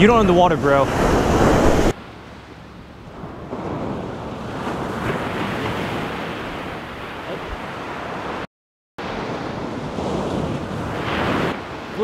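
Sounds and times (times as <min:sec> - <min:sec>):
wind buffeting microphone: 0:00.0 - 0:02.0
ocean surf washing onto beach: 0:00.0 - 0:12.0.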